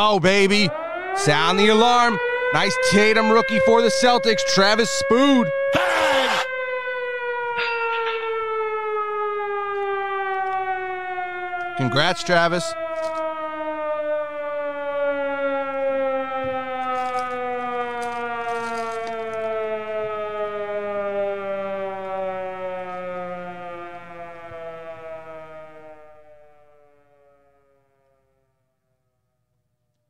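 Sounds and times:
siren wailing: 0:00.0 - 0:28.7.

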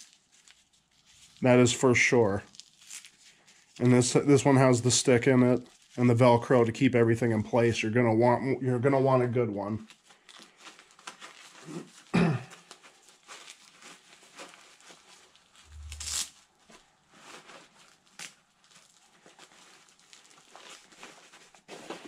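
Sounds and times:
rustling gear in backpack: 0:09.9 - 0:22.0.

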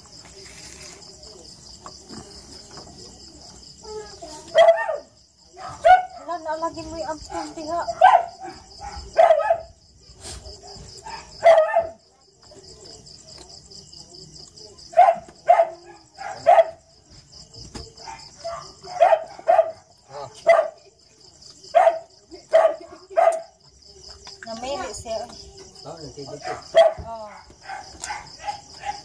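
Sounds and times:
crickets trilling: 0:00.0 - 0:29.0
dog barking: 0:04.5 - 0:06.4, 0:07.3 - 0:09.8, 0:10.6 - 0:12.0, 0:14.9 - 0:16.9, 0:18.0 - 0:20.9, 0:21.7 - 0:23.6, 0:26.3 - 0:29.0.

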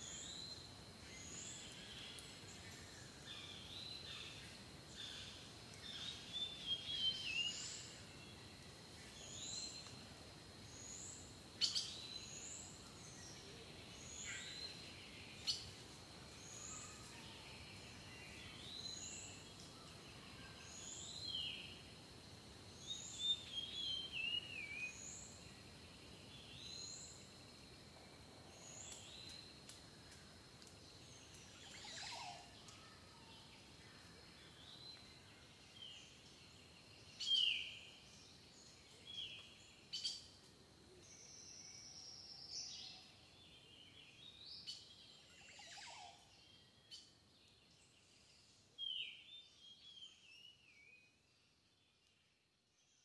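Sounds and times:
faint background hiss: 0:00.0 - 0:53.0
faint clicks: 0:28.8 - 0:31.5, 0:32.6 - 0:32.8.

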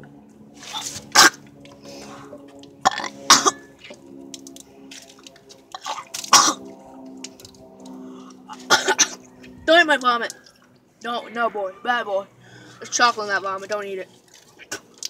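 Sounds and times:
person coughing and hacking: 0:01.2 - 0:01.4, 0:02.9 - 0:03.7, 0:05.8 - 0:06.7, 0:08.5 - 0:09.2.

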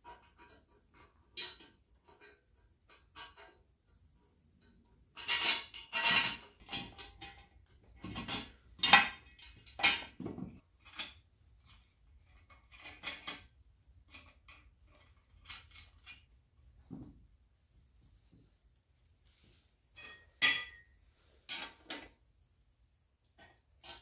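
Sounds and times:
hardware clinking: 0:19.9 - 0:22.2.

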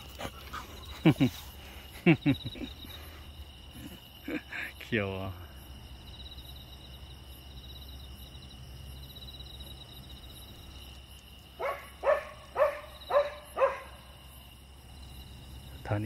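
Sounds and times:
dog barking: 0:11.6 - 0:14.1.

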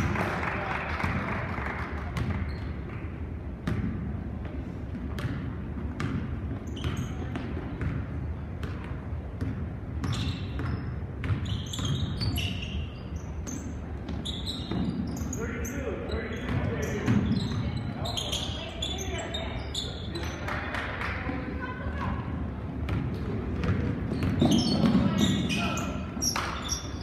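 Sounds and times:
sneaker squeaks: 0:02.2 - 0:03.0, 0:04.9 - 0:20.6, 0:22.8 - 0:27.0.

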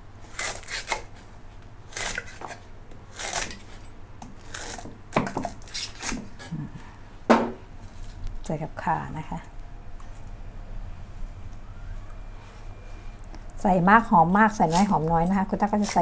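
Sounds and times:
knife cutting stalks on board: 0:01.9 - 0:06.5, 0:14.6 - 0:16.0.

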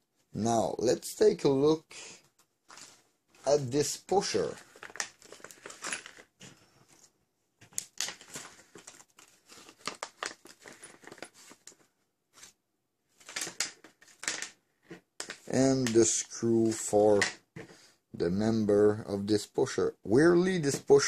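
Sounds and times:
plastic bag crinkling: 0:02.7 - 0:07.1, 0:07.8 - 0:11.9, 0:13.2 - 0:14.6.

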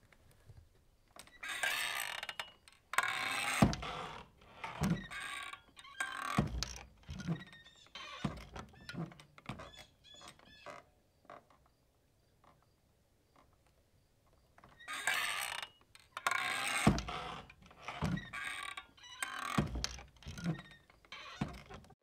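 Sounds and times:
creaky ratchet-like clicks: 0:01.2 - 0:10.8, 0:14.7 - 0:21.9
short squeaks: 0:01.2 - 0:10.9, 0:14.7 - 0:22.0.

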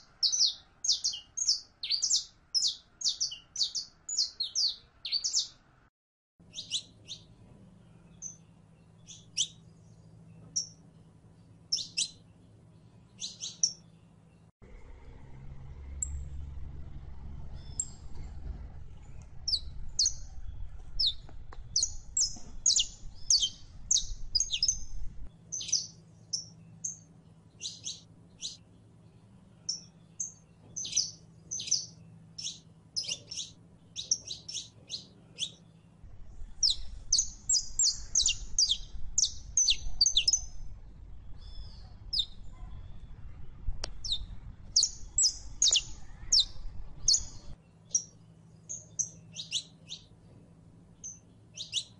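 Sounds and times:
finch singing high chirps: 0:00.0 - 0:05.6, 0:06.5 - 0:14.5, 0:17.5 - 0:18.2, 0:19.5 - 0:43.1, 0:43.8 - 0:50.1, 0:51.0 - 0:51.9
faint low hum: 0:01.8 - 0:51.9.

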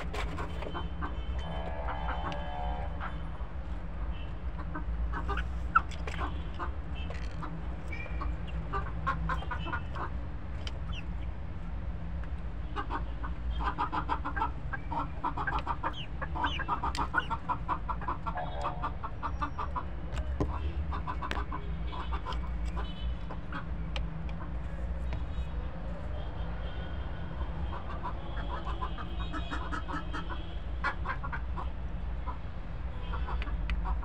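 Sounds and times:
hens clucking: 0:00.0 - 0:03.4, 0:04.5 - 0:11.0, 0:12.7 - 0:24.8, 0:27.4 - 0:32.4.

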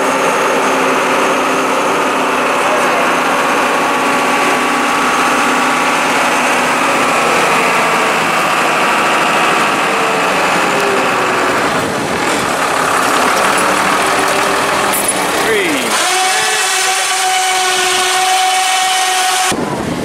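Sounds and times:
engine running steadily: 0:00.0 - 0:20.0.

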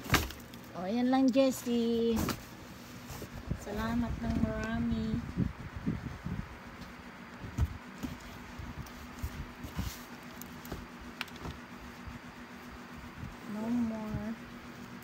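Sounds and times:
clothes and plastic rustling: 0:00.0 - 0:05.4, 0:07.4 - 0:12.1
faint steady hum: 0:00.0 - 0:15.0.

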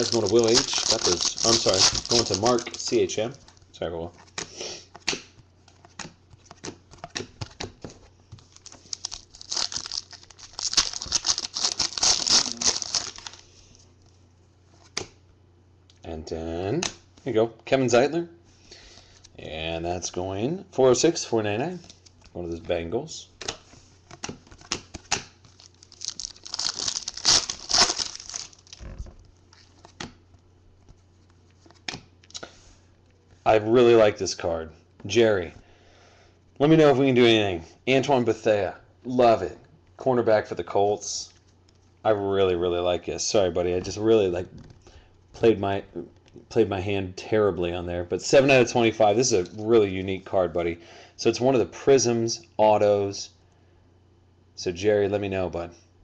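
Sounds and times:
foil wrapper crinkling and tearing: 0:00.0 - 0:03.0, 0:08.5 - 0:13.4, 0:25.4 - 0:28.9.

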